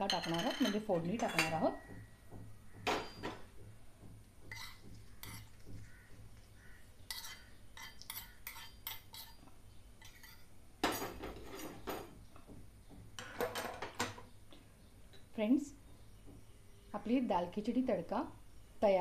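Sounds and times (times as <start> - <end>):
spoon clinking on iron pan: 0.0 - 2.0, 2.9 - 3.4, 4.5 - 5.5, 7.1 - 9.4.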